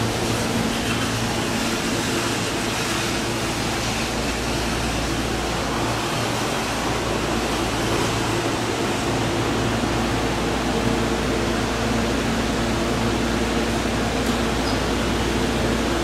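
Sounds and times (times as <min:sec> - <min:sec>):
air-conditioning hiss: 0:00.0 - 0:16.0.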